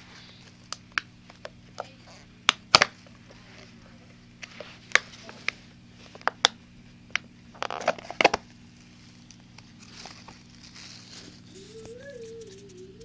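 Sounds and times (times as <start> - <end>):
plastic crinkling rustle: 7.5 - 12.8.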